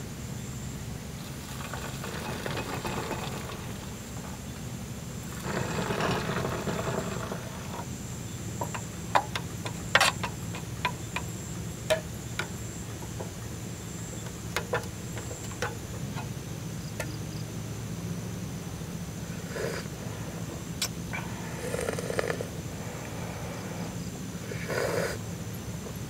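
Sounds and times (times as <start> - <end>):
water pouring into metal cup: 1.5 - 4.0.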